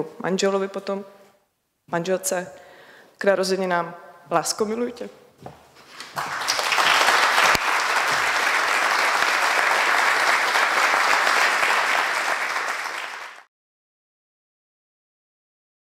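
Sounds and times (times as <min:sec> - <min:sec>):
audience applauding: 0:06.0 - 0:13.5.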